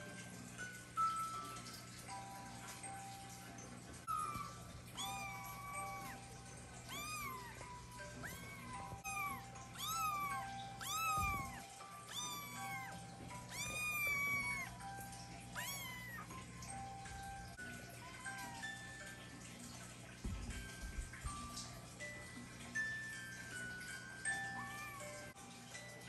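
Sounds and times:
soft background music: 0.0 - 26.0
kitten meowing: 4.1 - 14.8, 15.5 - 16.7.

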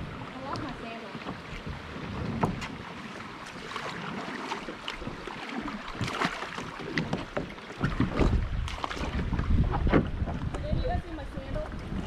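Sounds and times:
paddle splashing in water: 0.0 - 12.0.

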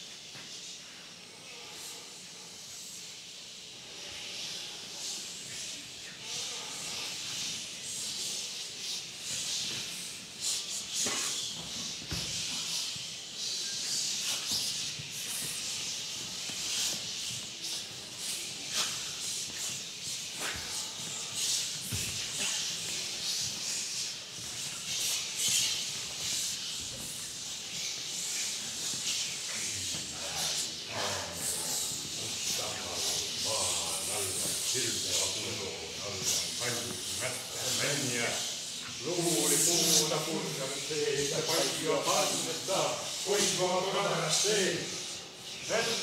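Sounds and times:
choir hissing: 3.6 - 46.0
low choir voices: 28.8 - 46.0.

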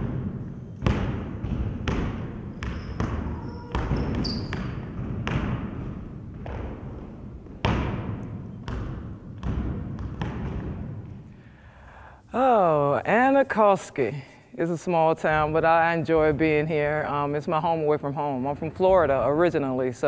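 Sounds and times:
basketball bouncing on gym floor: 0.0 - 11.4, 15.3 - 17.6
high shoe squeaks: 2.5 - 4.9.

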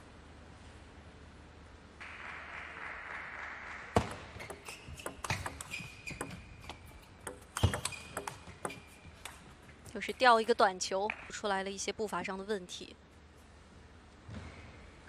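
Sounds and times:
shoes squeaking on floor: 4.4 - 9.4
table tennis ball clicking: 4.4 - 9.4.

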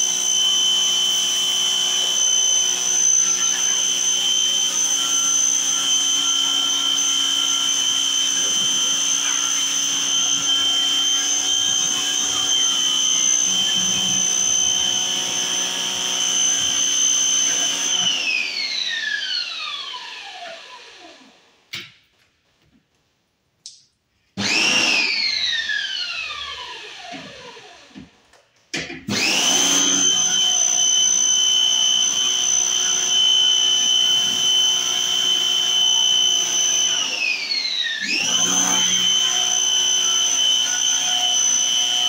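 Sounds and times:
electric pressure washer whine: 0.0 - 21.5, 24.4 - 28.0, 29.1 - 42.0.

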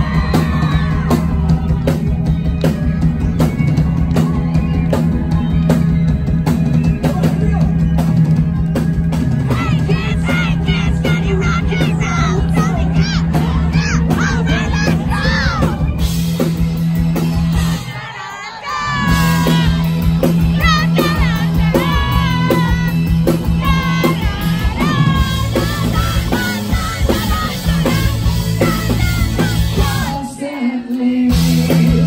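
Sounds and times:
electric bass line: 0.0 - 17.9, 19.0 - 30.3, 31.3 - 32.0
live rock band: 0.0 - 32.0
person singing: 20.6 - 32.0.

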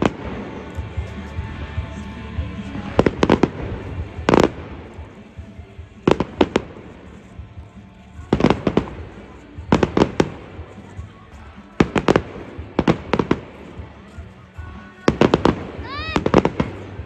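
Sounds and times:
fireworks bangs: 15.0 - 17.0.

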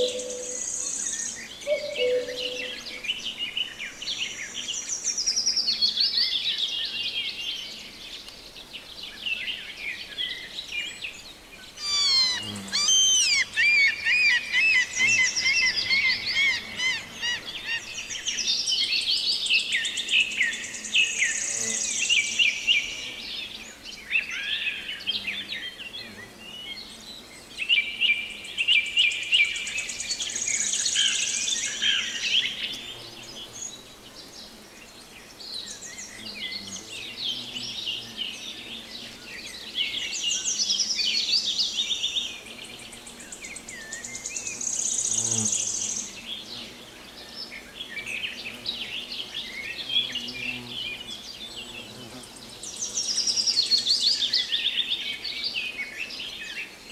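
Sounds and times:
birds chirping and warbling: 0.0 - 56.9
high fast bird trill: 1.7 - 2.7, 11.8 - 17.0.

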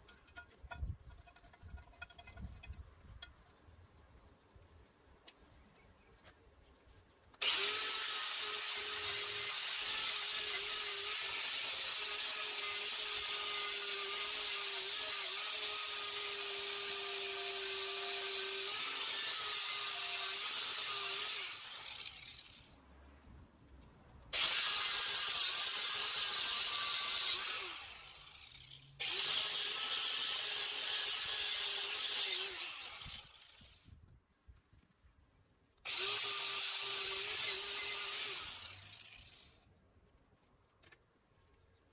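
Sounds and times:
angle grinder grinding metal: 7.4 - 22.7, 24.4 - 33.7, 35.9 - 39.5.

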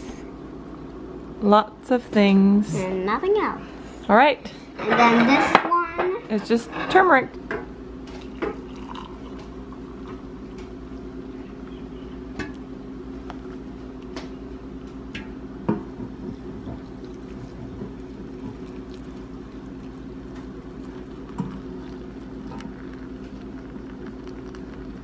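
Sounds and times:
steady low hum: 0.0 - 25.0
cups and utensils clinking: 8.2 - 9.4
water pouring into cups: 8.2 - 10.2, 16.4 - 25.0.

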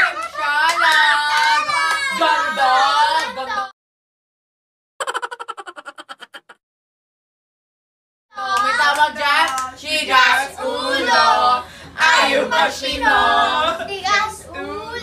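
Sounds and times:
young voices singing together: 0.0 - 3.7, 8.4 - 15.0.

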